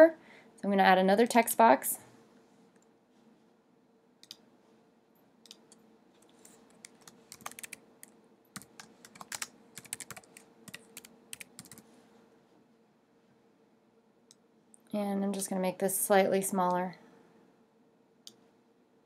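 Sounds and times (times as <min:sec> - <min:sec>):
faint keyboard typing: 0:05.4 - 0:12.0.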